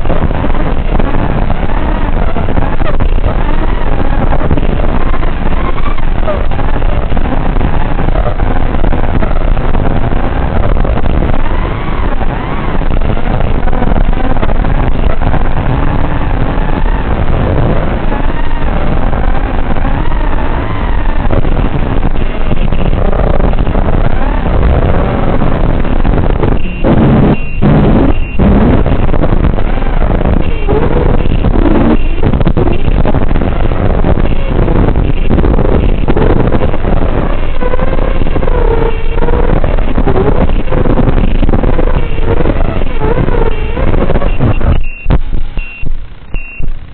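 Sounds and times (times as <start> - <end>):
drone motors whining: 0.0 - 46.9.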